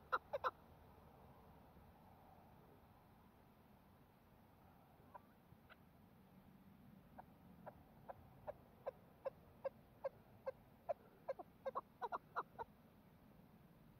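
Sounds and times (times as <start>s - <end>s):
partridge clucking call: 0.0s - 0.6s, 7.2s - 12.7s.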